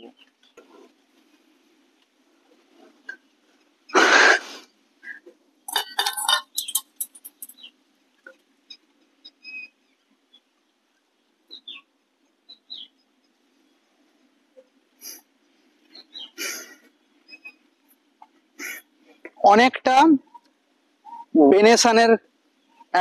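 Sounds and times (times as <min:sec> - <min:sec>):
bird chirps: 0:05.0 - 0:07.8, 0:08.7 - 0:10.5, 0:11.5 - 0:13.8, 0:15.8 - 0:17.7, 0:20.3 - 0:21.4.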